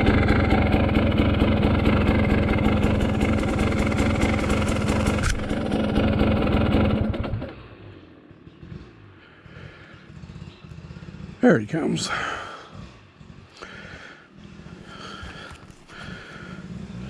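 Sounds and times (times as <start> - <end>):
dirt bike engine running: 0.0 - 17.0.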